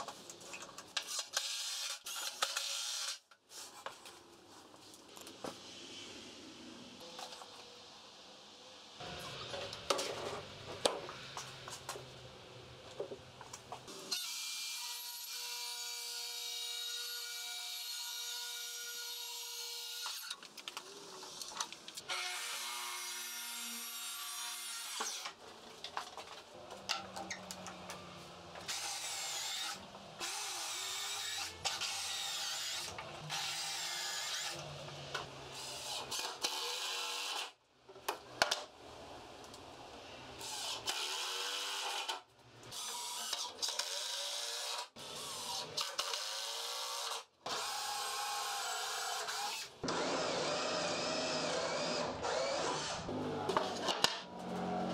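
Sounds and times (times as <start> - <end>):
track saw cutting plywood: 47.5 - 54.9.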